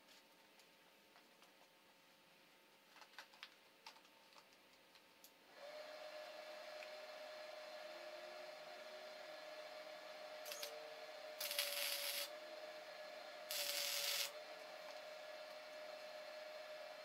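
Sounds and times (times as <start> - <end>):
steady hum: 5.5 - 17.0
sizzling tack welds: 10.4 - 10.8, 11.4 - 12.3, 13.5 - 14.4
welding arc crackle: 10.4 - 10.8, 11.4 - 12.3, 13.5 - 14.4.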